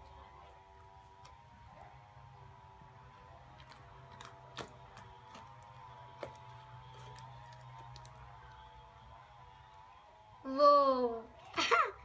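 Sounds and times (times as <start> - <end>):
faint steady hum: 0.0 - 12.0
slime kneaded by hand: 3.5 - 8.4.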